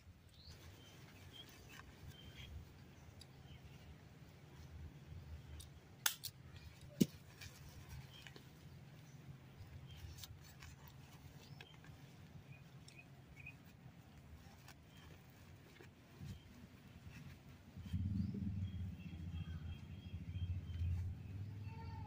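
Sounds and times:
diaper fastening clicks and snaps: 6.0 - 6.4
soft handling ticks: 6.4 - 17.8
steady low hum: 16.1 - 21.8.

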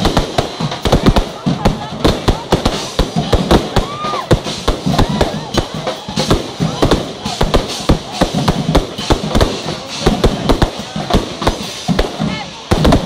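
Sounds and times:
fireworks bangs: 0.0 - 13.0.

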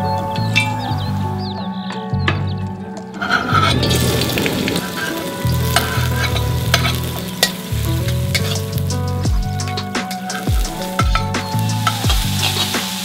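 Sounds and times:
garlic and chili sizzling in oil: 3.2 - 13.0.

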